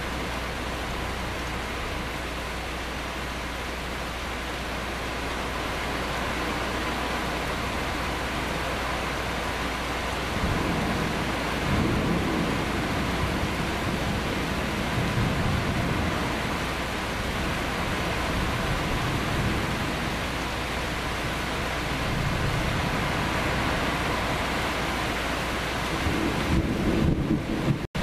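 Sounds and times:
steady rain: 0.0s - 28.0s
low thunder rumbling: 10.2s - 28.0s.

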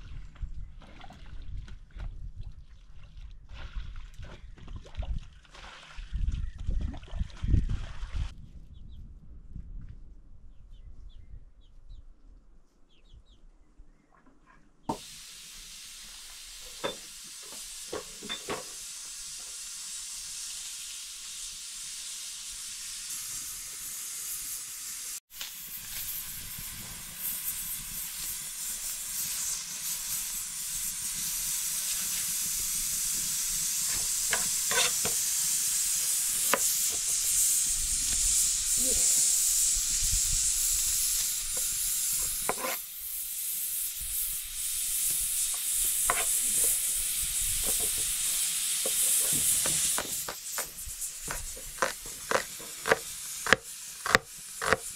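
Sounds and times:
food sizzling: 14.9s - 54.9s.

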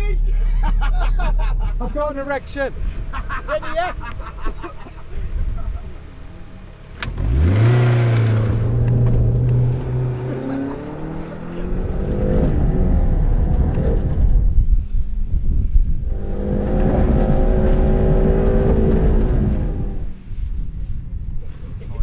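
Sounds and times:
car engine revving: 5.0s - 14.6s, 15.9s - 20.3s.

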